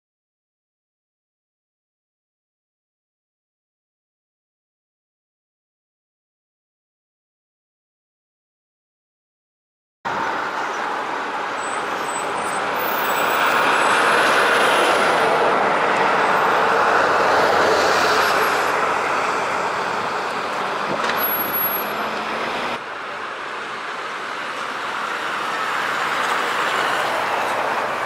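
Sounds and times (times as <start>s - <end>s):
buses and cars driving past: 10.1s - 28.0s.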